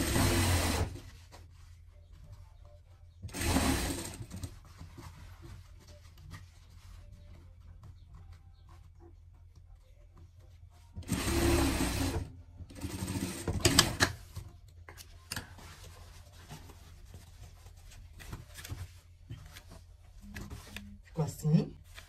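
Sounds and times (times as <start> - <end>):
sewing machine stitching: 0.0 - 1.0, 3.3 - 4.5, 11.0 - 14.2.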